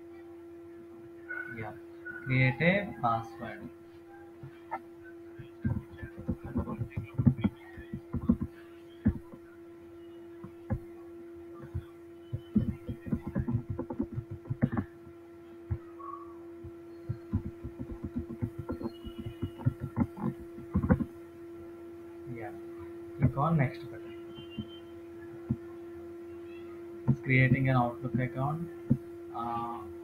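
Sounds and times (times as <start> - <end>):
steady hum: 0.0 - 30.0
keyboard typing: 5.4 - 9.5, 11.6 - 21.2, 23.2 - 25.8.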